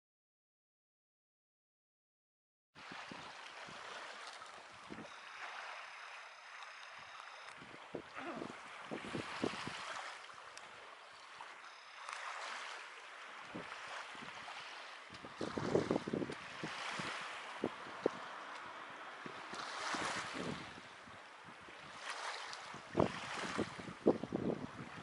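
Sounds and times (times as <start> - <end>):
wind buffeting microphone: 4.8 - 5.1, 6.9 - 10.0, 15.1 - 25.0
faint thin high tone: 5.0 - 7.6.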